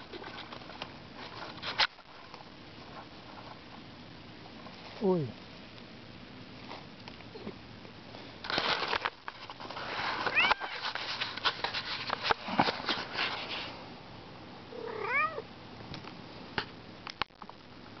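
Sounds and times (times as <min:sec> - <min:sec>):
rustling and clicks: 0:00.0 - 0:03.9, 0:08.4 - 0:13.7
cat meowing: 0:10.3 - 0:10.7, 0:14.7 - 0:15.5.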